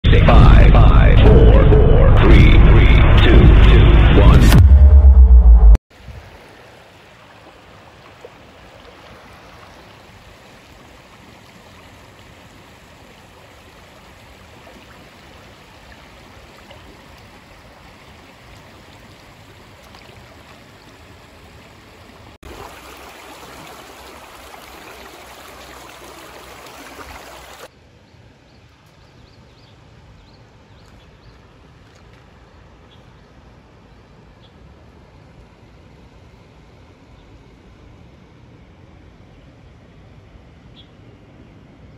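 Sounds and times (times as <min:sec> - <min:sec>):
creek water running over rocks: 0:05.9 - 0:27.7.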